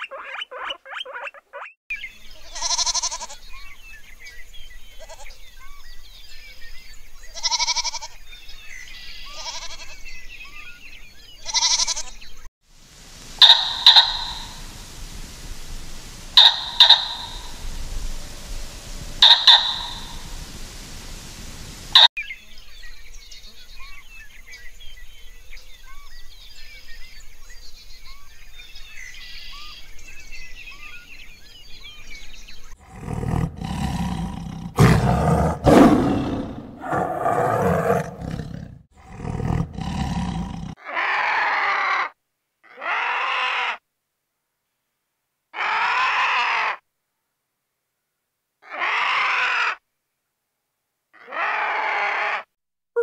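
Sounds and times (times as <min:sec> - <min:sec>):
quiet hiss: 0:12.2 - 0:32.7
faint bird chirps: 0:13.2 - 0:32.8
tiger roaring: 0:32.8 - 0:40.8.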